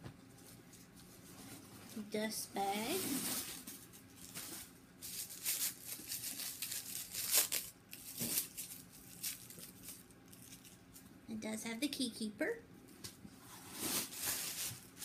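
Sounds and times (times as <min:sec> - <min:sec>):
wrapping paper crinkling: 0:00.4 - 0:11.1, 0:13.6 - 0:15.0.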